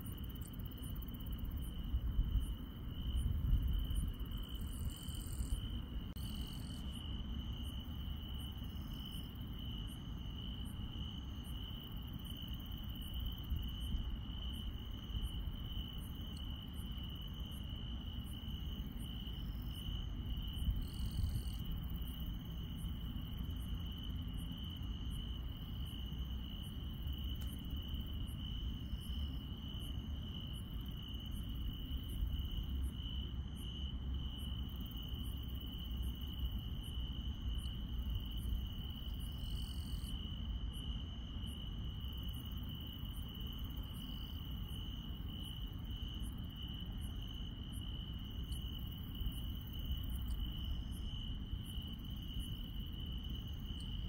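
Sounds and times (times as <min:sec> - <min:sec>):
crickets chirping: 0:00.0 - 0:54.0
low background rumble: 0:00.0 - 0:54.0
insect high ticks: 0:11.6 - 0:29.8, 0:34.2 - 0:40.2, 0:47.6 - 0:54.0.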